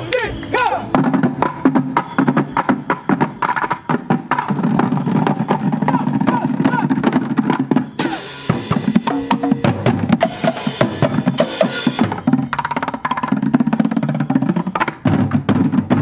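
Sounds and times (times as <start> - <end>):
drumming on buckets and drums: 0.0 - 16.0
cymbal wash: 8.0 - 12.3.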